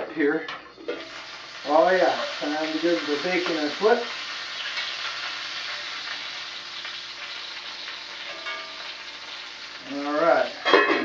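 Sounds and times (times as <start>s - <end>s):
bacon sizzling in a frying pan: 0.8s - 11.0s.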